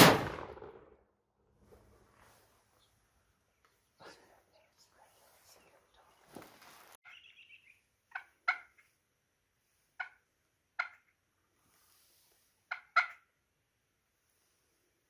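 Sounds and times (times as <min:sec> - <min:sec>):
wild turkeys calling: 0:07.0 - 0:08.9, 0:09.9 - 0:11.3, 0:12.6 - 0:13.3.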